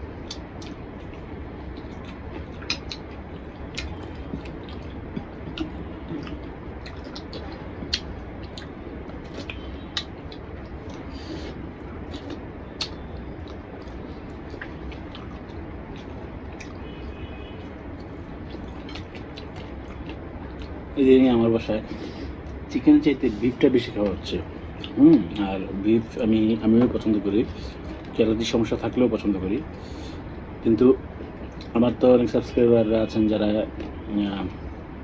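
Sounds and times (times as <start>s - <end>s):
steady low hum: 0.0s - 35.0s
chewing smacks: 0.2s - 17.0s, 17.6s - 20.8s, 24.7s - 25.4s.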